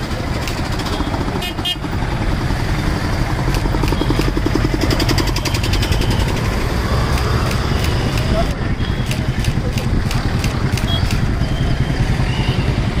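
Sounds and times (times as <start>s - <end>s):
low traffic rumble: 0.0s - 13.0s
motorbike engines: 0.0s - 13.0s.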